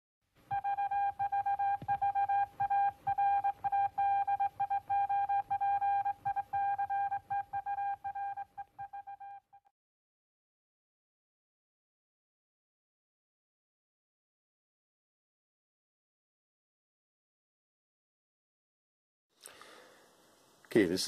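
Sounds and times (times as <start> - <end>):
morse code beeps: 0.5 - 9.6.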